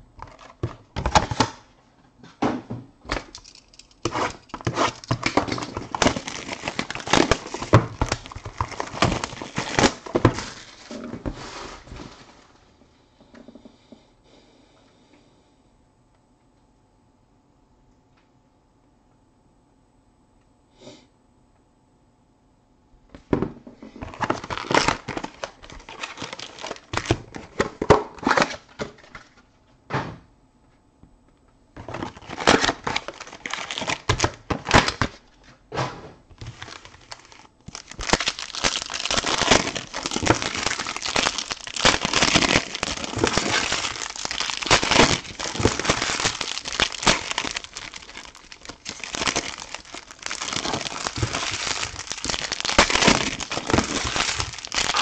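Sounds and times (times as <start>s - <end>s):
plastic wrappers crinkling: 3.1s - 12.6s, 24.0s - 29.3s, 31.8s - 35.4s, 36.4s - 55.0s.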